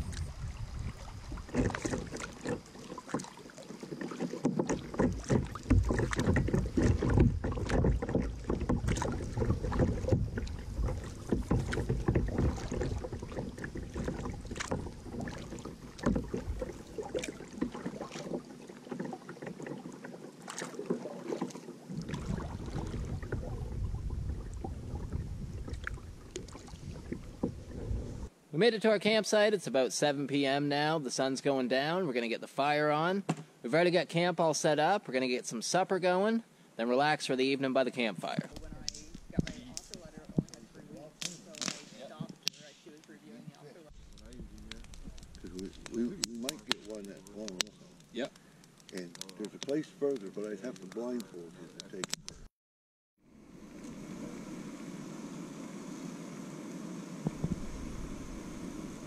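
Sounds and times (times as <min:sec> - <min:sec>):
paddles splashing in water: 0:00.0 - 0:28.3, 0:38.0 - 0:42.6, 0:43.8 - 0:52.5, 0:57.1 - 0:59.0
paddle knocks: 0:01.3 - 0:28.2.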